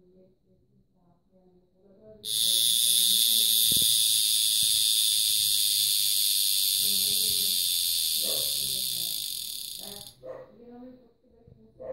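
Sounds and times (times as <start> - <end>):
wristwatch alarm buzzing: 2.2 - 10.2.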